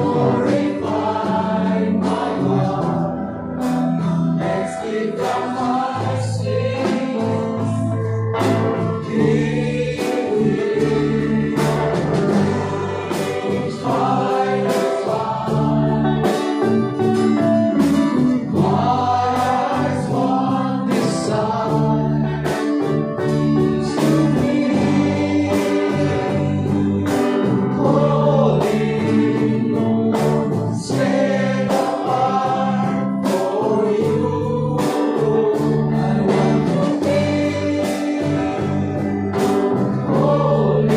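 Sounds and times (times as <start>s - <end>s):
electric and acoustic guitars: 0.0s - 40.9s
keyboard: 0.0s - 40.9s
steady percussion beat: 0.0s - 40.9s
man singing lead: 23.8s - 39.3s, 40.0s - 40.9s.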